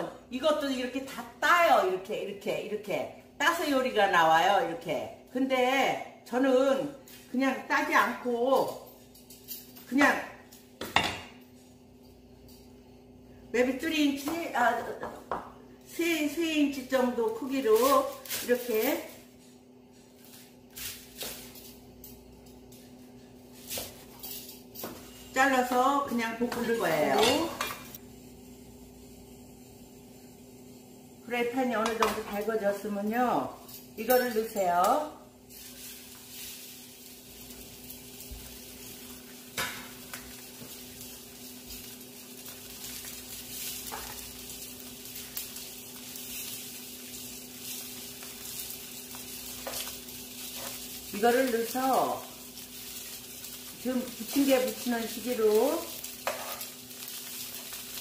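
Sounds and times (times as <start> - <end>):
shrimp sizzling in hot oil: 15.9 - 19.4, 24.6 - 58.0.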